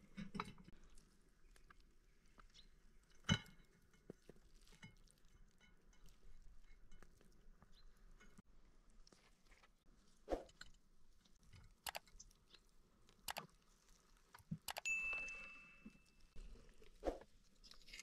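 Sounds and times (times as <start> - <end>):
utensils clicking on food: 11.8 - 12.2, 14.3 - 14.9.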